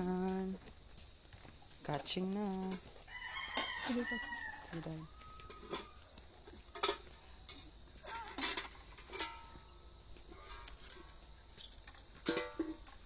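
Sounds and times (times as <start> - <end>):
metal spoons and plate clinking: 5.4 - 6.0, 6.7 - 9.6, 12.2 - 13.0.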